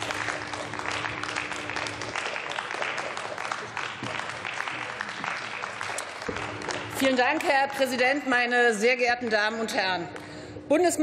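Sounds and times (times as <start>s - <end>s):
hands clapping: 0.0s - 8.2s.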